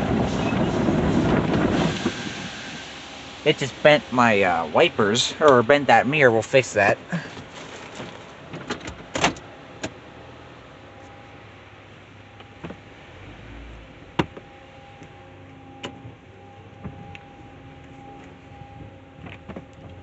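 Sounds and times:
muffled car wash hum: 0:00.0 - 0:20.0
faint steady whine: 0:09.4 - 0:20.0.

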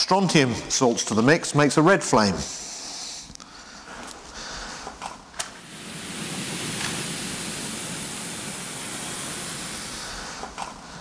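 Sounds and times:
pyrotechnic mix burning with hiss: 0:05.6 - 0:10.7.

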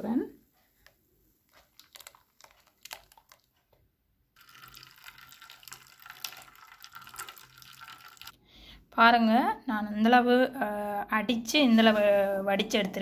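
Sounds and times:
juice dripping and splashing: 0:01.5 - 0:03.8, 0:04.4 - 0:08.4
spoon pushing pulp through mesh: 0:01.5 - 0:03.8.

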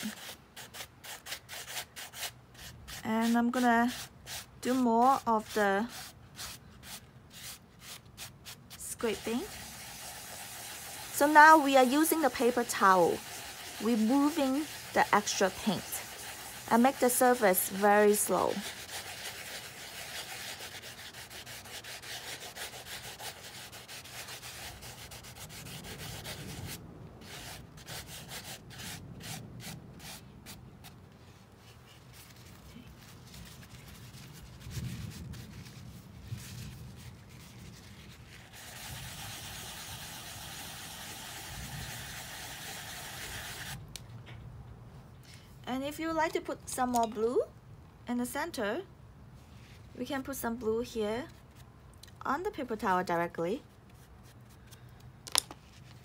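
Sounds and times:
paper towel rubbing canvas: 0:00.0 - 0:43.8.

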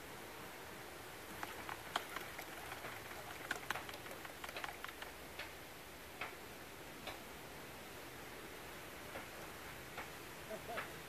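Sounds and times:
faint steady hiss: 0:00.0 - 0:11.0
sharp irregular clicks: 0:01.3 - 0:05.6.

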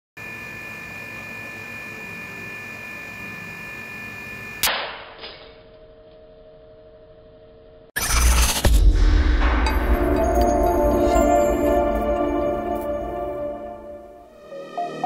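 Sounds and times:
machine whine: 0:07.9 - 0:14.3
low hum: 0:08.0 - 0:14.3.

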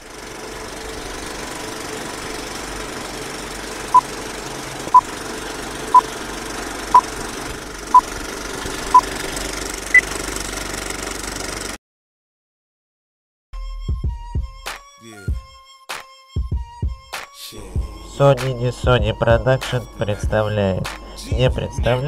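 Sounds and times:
film projector clatter: 0:00.0 - 0:11.8.

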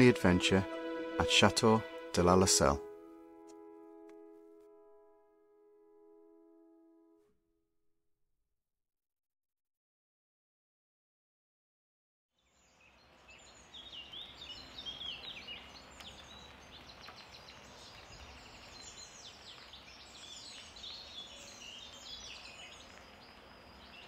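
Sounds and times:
faint outdoor background noise: 0:12.4 - 0:24.0
small birds chirping: 0:12.4 - 0:24.0.

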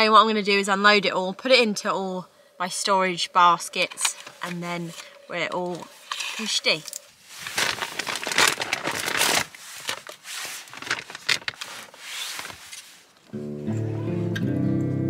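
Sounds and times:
plastic packaging crinkling: 0:04.2 - 0:13.2
acoustic guitar: 0:13.3 - 0:15.0.

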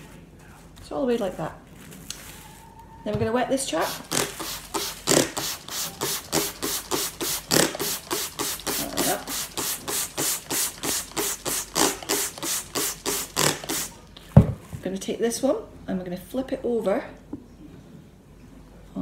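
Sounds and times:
spray bottle squirting: 0:03.8 - 0:14.0.

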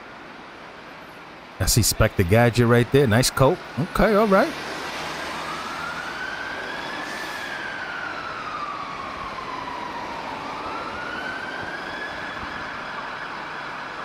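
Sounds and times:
street noise: 0:00.0 - 0:14.0
fire engine siren wailing: 0:03.8 - 0:14.0.

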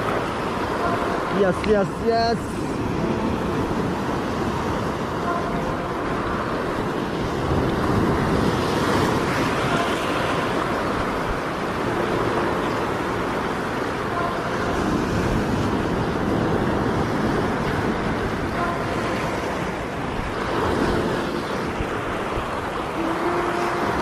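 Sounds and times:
sea surf washing over rocks: 0:00.0 - 0:24.0.

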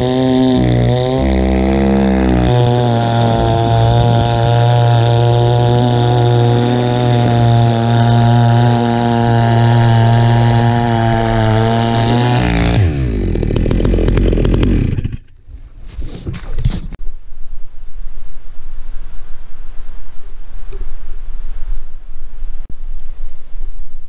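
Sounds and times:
chainsaw cutting log at full throttle: 0:00.0 - 0:15.4.

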